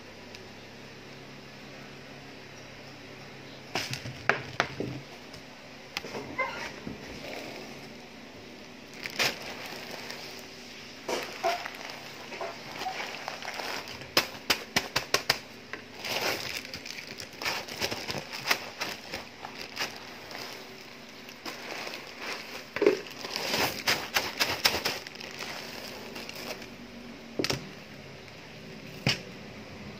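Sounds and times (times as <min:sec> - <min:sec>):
plastic bag crinkling: 0:06.4 - 0:26.8
plastic pellets clicking and rattling: 0:08.9 - 0:26.7.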